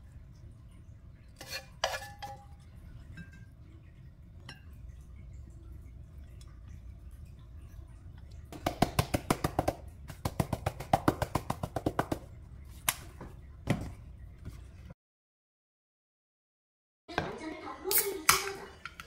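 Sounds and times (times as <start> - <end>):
shaker knocks: 8.5 - 12.3.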